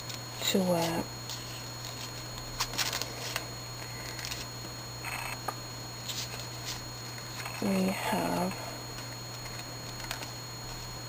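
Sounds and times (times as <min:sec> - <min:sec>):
steady low hum: 0:00.0 - 0:11.0
paper rustling and crinkling: 0:01.3 - 0:04.5.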